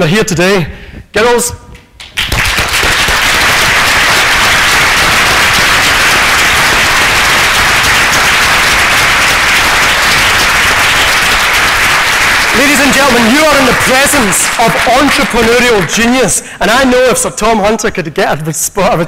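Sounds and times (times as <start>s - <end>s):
audience applauding: 2.0s - 16.9s.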